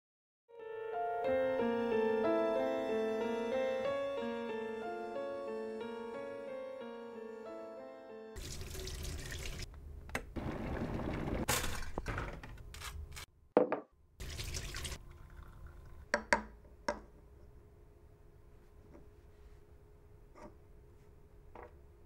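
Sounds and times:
water running: 8.4s - 9.7s, 10.4s - 12.1s, 14.2s - 16.2s.

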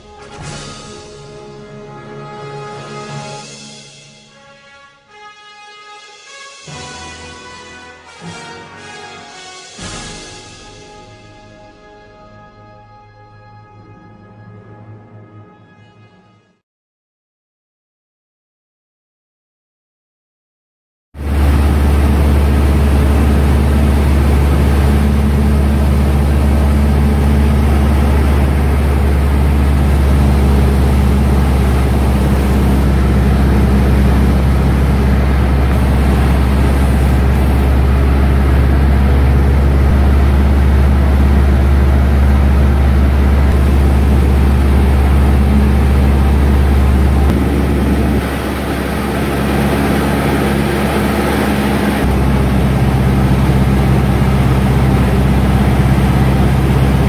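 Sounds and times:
airplane engine and propeller droning: 21.2s - 57.0s
wind noise: 21.2s - 57.0s.

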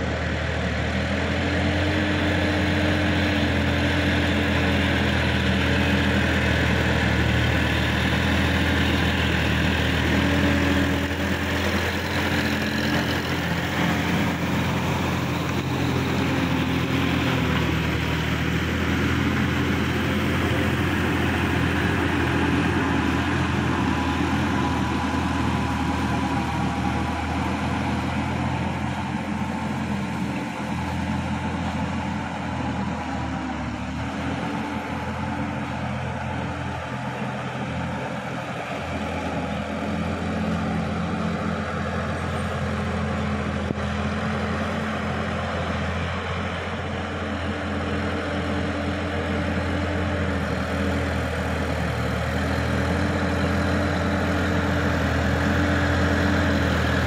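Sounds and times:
tractor diesel engine under load: 0.0s - 57.0s.

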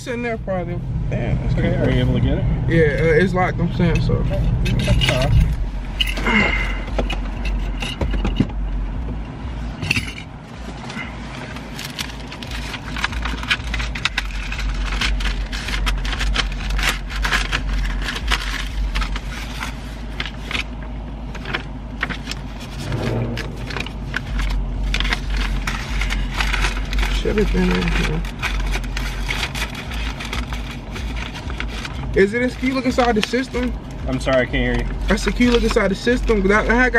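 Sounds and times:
car engine idling hum: 0.0s - 36.9s
paper rustling and crackling: 10.7s - 33.7s.

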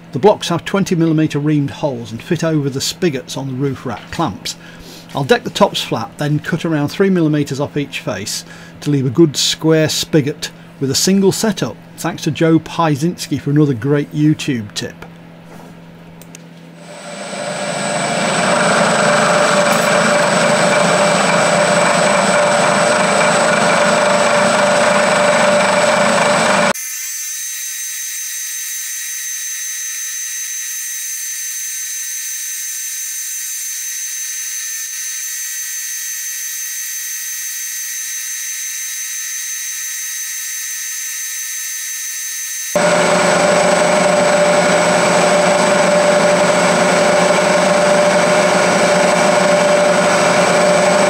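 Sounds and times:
milling machine cutting metal: 16.8s - 27.6s, 42.6s - 51.0s
high-pitched cutting whine: 16.8s - 51.0s.

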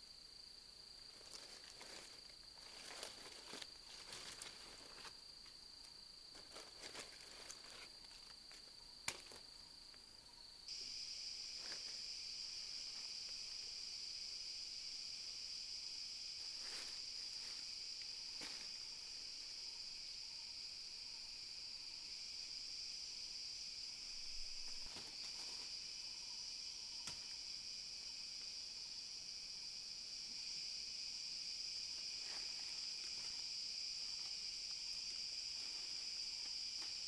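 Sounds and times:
insect chorus: 0.0s - 37.0s
sticks and leaf litter rustling: 1.1s - 5.3s, 6.3s - 9.5s, 16.4s - 17.7s, 18.3s - 19.1s, 24.6s - 25.7s
high-pitched insect drone: 8.5s - 37.0s.

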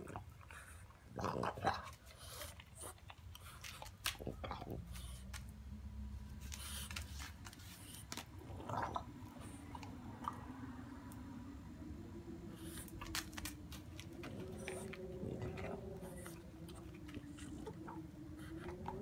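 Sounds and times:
puppy crunching on bone: 0.0s - 11.2s, 12.6s - 19.0s
low steady hum: 0.0s - 19.0s
puppy snuffling: 12.5s - 19.0s.

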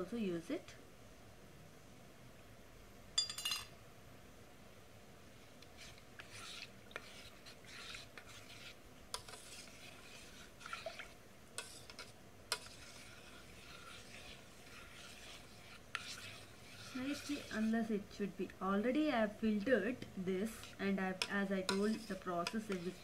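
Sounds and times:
spoon clinking on metal: 3.2s - 3.7s
spoon scraping metal pot: 5.7s - 18.0s, 20.4s - 23.0s.

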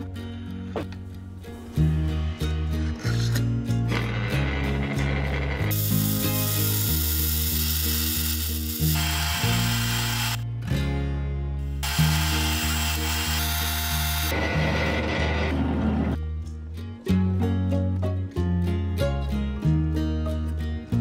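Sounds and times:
background music with bass line: 0.0s - 6.9s, 10.4s - 12.2s, 16.1s - 21.0s
bandsaw cutting: 3.9s - 10.4s, 11.8s - 16.0s.

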